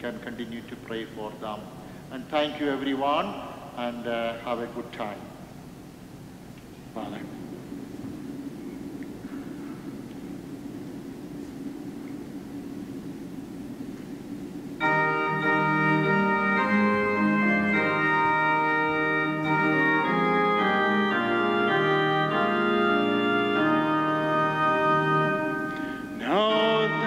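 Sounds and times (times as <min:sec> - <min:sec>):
faint room hum: 0:00.0 - 0:27.0
church organ chords: 0:14.7 - 0:27.0.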